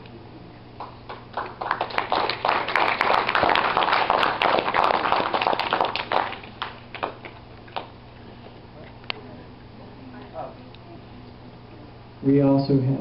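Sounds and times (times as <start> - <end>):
congregation applauding: 0.8 - 8.0.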